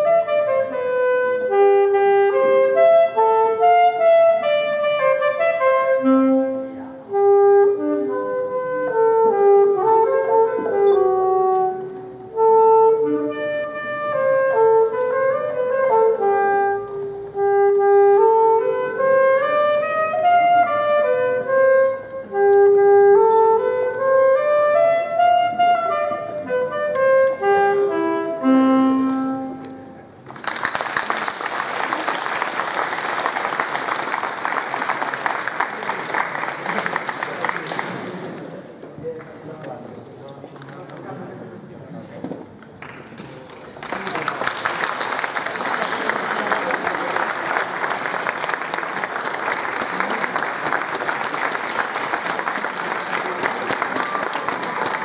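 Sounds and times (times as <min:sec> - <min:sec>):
saxophone playing slow melody: 0:00.0 - 0:30.2
applause: 0:30.2 - 0:38.5, 0:42.8 - 0:55.0.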